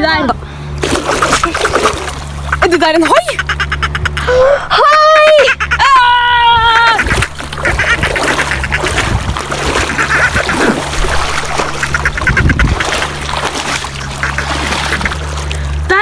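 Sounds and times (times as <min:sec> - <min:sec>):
steady low hum: 0:00.0 - 0:16.0
feet splashing through shallow water: 0:00.8 - 0:03.0, 0:07.0 - 0:15.9.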